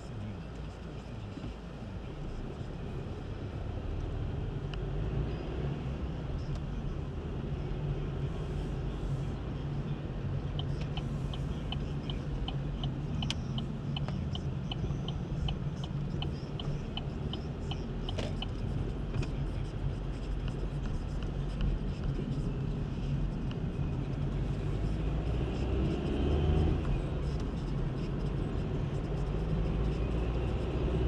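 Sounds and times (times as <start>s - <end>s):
car engine and road rumble: 0.0s - 31.0s
light regular ticking: 10.5s - 22.4s.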